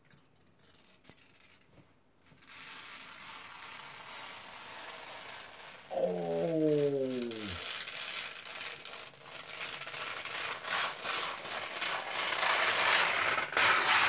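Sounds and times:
voice sliding down in pitch: 5.9 - 7.6.

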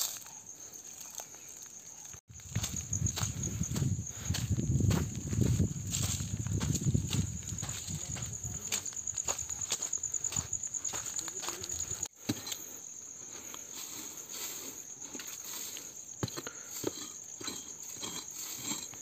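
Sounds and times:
insects chirping: 0.0 - 19.0
footsteps on dry leaves: 2.3 - 12.2
blade digging into dry soil: 15.3 - 19.0.

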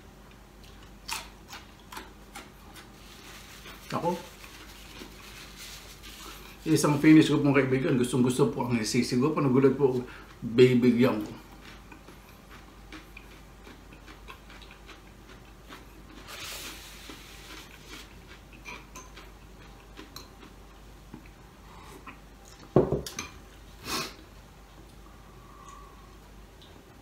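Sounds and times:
soft rustle: 3.0 - 7.0
bottle knock: 22.8 - 23.1.

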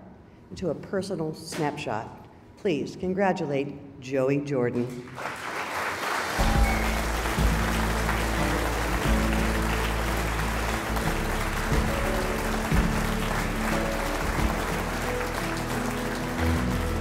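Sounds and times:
audience applauding: 5.1 - 17.0
music with sustained notes: 6.4 - 17.0.

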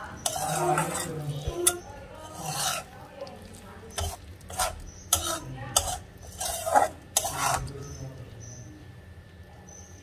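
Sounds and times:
metal spatula scraping a wok: 0.0 - 8.0.

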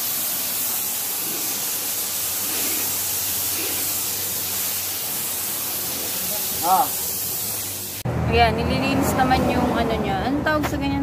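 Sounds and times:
pressure washer jet hissing: 0.0 - 8.0.

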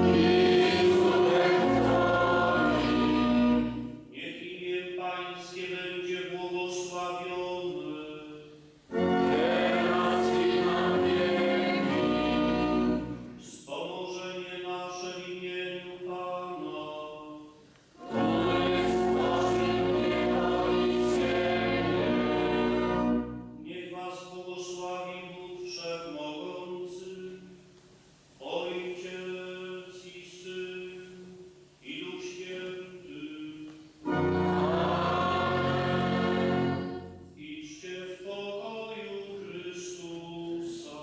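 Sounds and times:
organ: 0.0 - 17.3, 18.0 - 27.5, 31.9 - 41.0
congregation singing: 0.0 - 27.8, 28.4 - 41.0
man chanting: 4.1 - 8.5, 28.4 - 33.7, 37.4 - 41.0.

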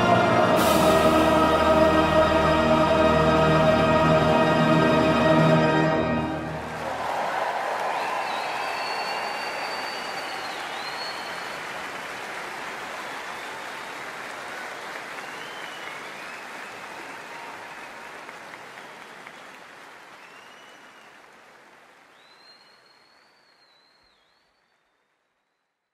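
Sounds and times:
audience applause: 5.9 - 25.1.

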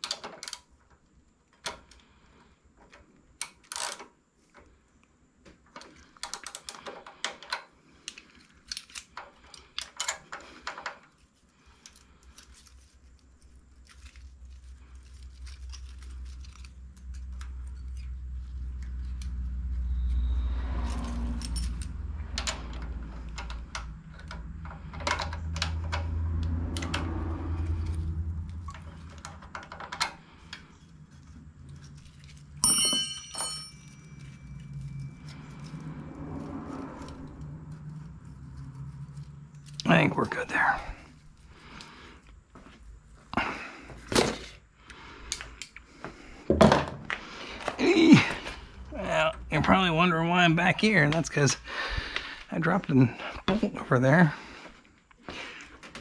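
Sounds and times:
metal tools clinking on engine: 20.8 - 26.1, 31.9 - 35.6
low rumble: 33.7 - 43.2.

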